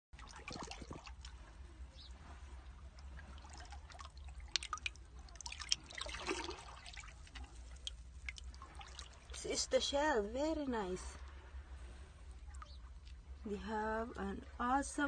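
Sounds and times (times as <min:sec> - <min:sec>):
water drips: 0:00.2 - 0:09.8, 0:12.3 - 0:15.0
hand splashing in shallow water: 0:02.3 - 0:09.2.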